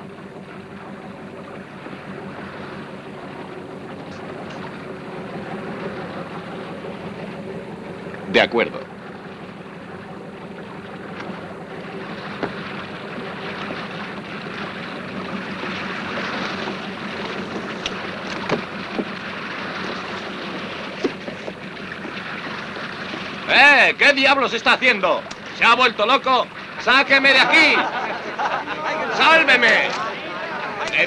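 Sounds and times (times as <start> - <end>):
low hum: 0.0 - 24.0
water splashing along boat hull: 0.0 - 31.0.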